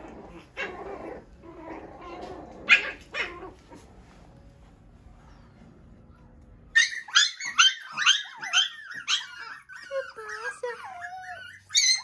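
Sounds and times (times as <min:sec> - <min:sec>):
puppies whining and whimpering: 0:00.0 - 0:04.1, 0:06.7 - 0:12.0
puppies yapping: 0:00.0 - 0:04.1, 0:06.7 - 0:12.0.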